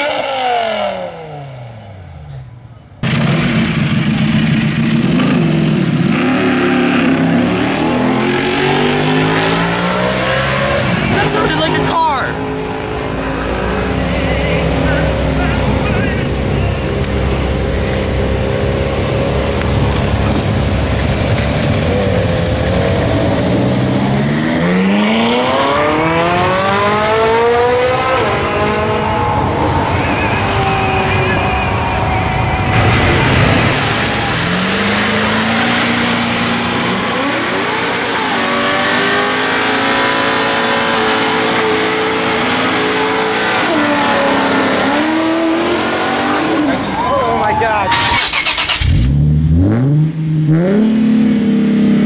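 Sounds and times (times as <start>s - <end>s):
performance car engines accelerating: 0.0s - 52.0s.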